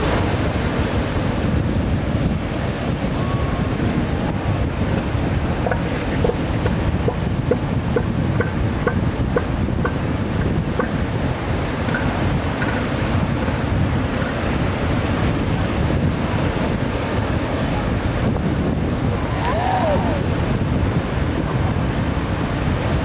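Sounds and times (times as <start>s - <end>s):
ocean surf breaking on beach: 0.0s - 23.0s
wind rumble on microphone: 0.0s - 23.0s.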